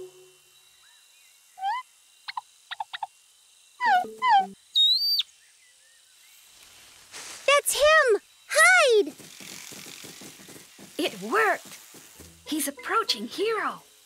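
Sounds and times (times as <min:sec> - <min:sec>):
cartoon bird calls: 0:01.6 - 0:03.1, 0:03.8 - 0:05.3.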